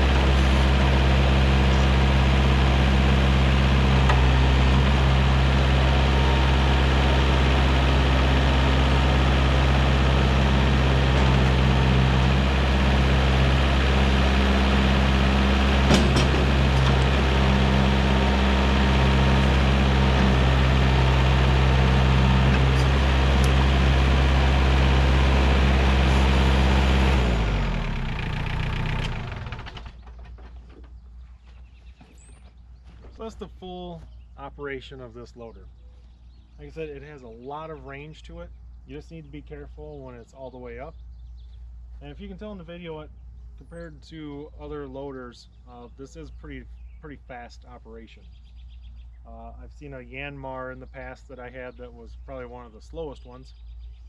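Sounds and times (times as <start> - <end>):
engine running down: 0.0 - 31.6
tractor diesel engine running: 0.0 - 34.6.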